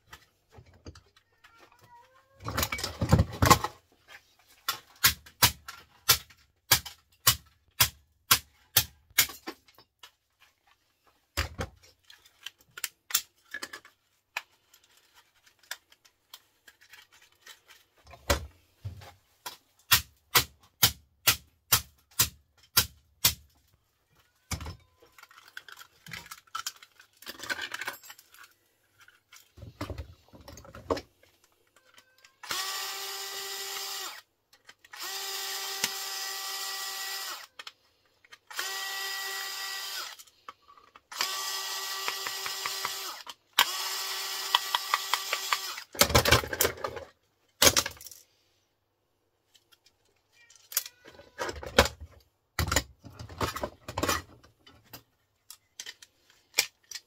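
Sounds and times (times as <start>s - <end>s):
plastic parts clicking and knocking: 0.0s - 32.9s, 33.8s - 38.8s, 39.9s - 48.3s, 49.4s - 57.0s
electric drill drilling into plastic: 32.4s - 34.2s, 34.9s - 37.5s, 38.5s - 40.2s, 41.1s - 45.9s.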